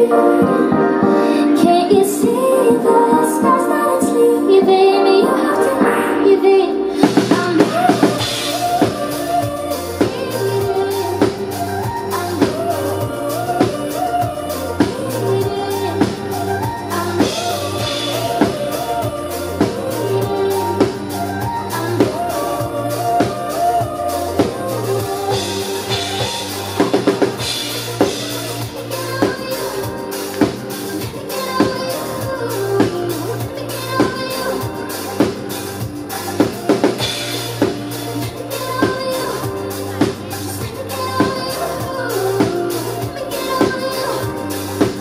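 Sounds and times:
live pop band music: 0.0s - 45.0s
drum kit beat: 6.9s - 45.0s
deep bass line: 7.0s - 45.0s.

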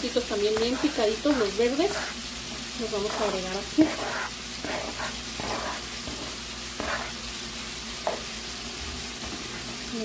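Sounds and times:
food sizzling in skillets: 0.0s - 10.0s
spatula scraping cutting board: 0.4s - 2.2s, 3.0s - 7.2s, 8.0s - 8.3s.

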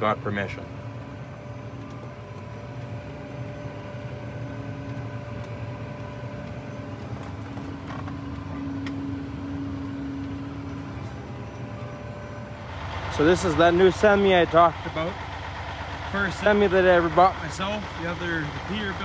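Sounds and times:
constant hum: 0.0s - 19.0s
diesel engine idling: 0.0s - 19.0s.

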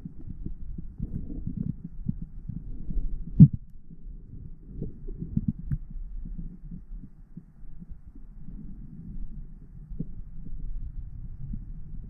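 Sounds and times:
underwater water movement: 0.0s - 12.0s
dull underwater thumps: 3.2s - 3.6s.

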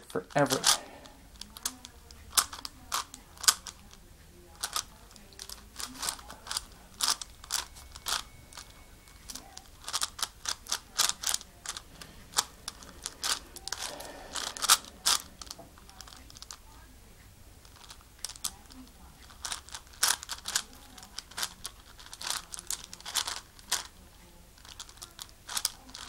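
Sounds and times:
puzzle cube layers clacking: 0.3s - 3.9s, 4.6s - 16.6s, 19.2s - 23.9s, 24.6s - 26.0s
puzzle cube scraping turn: 0.3s - 4.0s, 4.6s - 16.6s, 19.2s - 23.9s, 24.6s - 26.0s.

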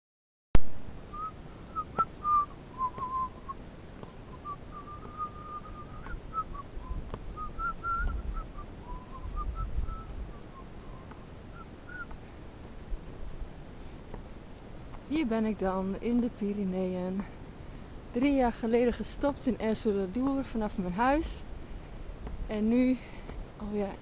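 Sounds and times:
low wind rumbles on microphone: 0.6s - 24.0s
person whistling a tune: 1.1s - 3.6s, 4.3s - 12.1s.

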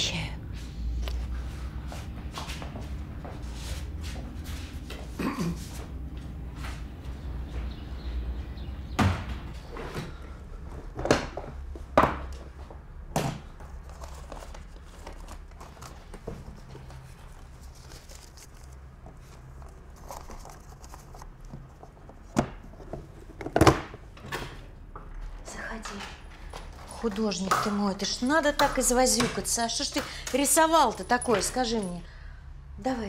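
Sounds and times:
knocks and thuds: 9.0s - 9.5s.

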